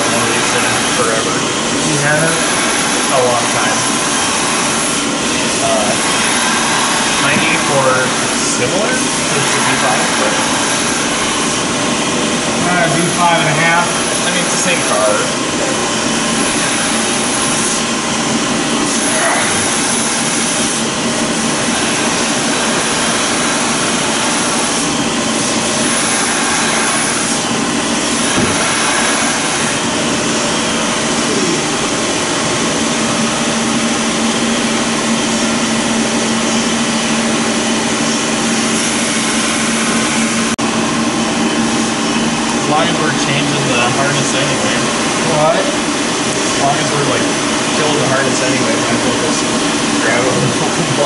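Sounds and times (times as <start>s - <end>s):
loud machine drone: 0.0s - 51.0s.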